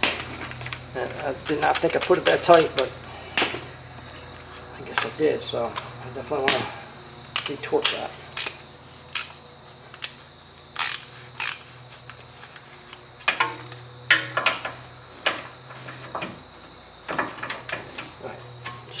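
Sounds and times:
hand tools clinking on metal: 0.0s - 5.9s.

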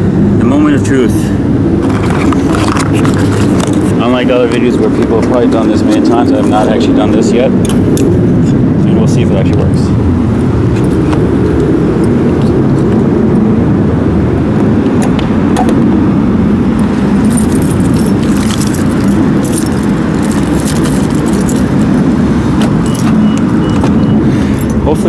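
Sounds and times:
steady low rumble: 0.0s - 25.0s
keys jangling: 16.8s - 24.8s.

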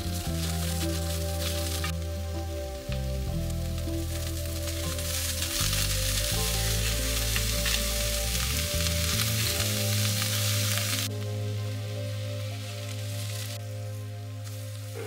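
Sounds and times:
vegetables sizzling in a pan: 4.9s - 11.1s.

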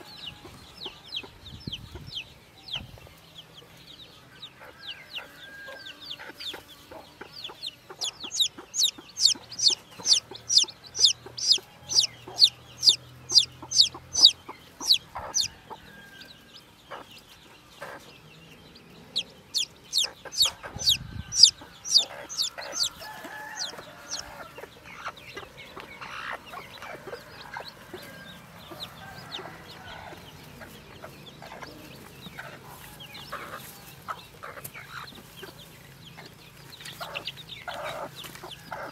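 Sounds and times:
chick peeping loudly: 0.0s - 38.9s
low clucking: 6.2s - 15.5s.

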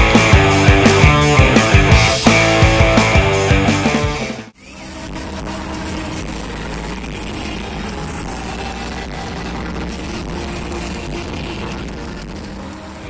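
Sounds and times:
live rock band playing: 0.0s - 4.5s.

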